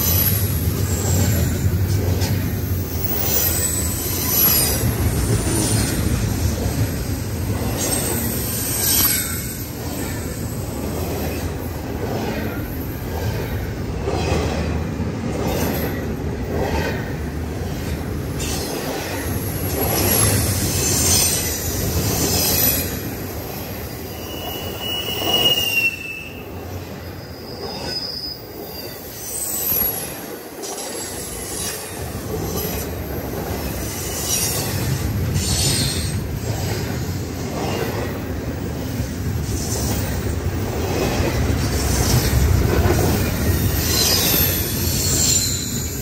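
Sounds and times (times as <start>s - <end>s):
freight train wheels clacking: 0.0s - 46.0s
high wheel squeal: 2.8s - 6.1s, 18.4s - 32.9s, 41.7s - 46.0s.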